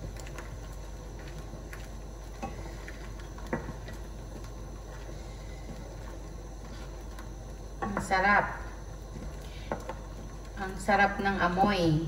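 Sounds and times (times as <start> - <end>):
soup simmering with pops: 0.0 - 11.4.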